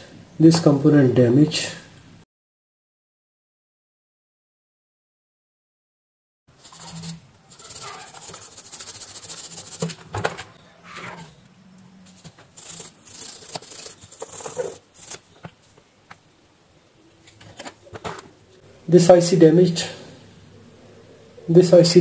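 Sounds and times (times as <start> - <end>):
brush scrubbing circuit board: 6.5 - 10.2, 12.0 - 15.8.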